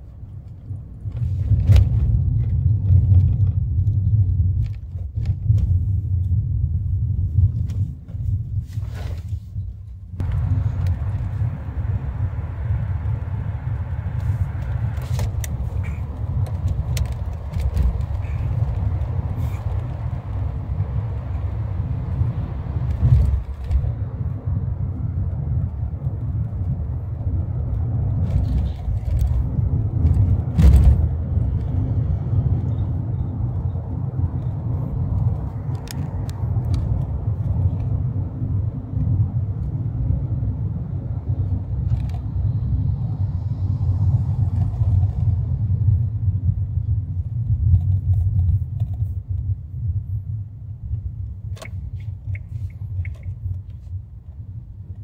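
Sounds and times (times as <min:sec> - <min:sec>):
car driving low rumble: 0:00.0 - 0:55.0.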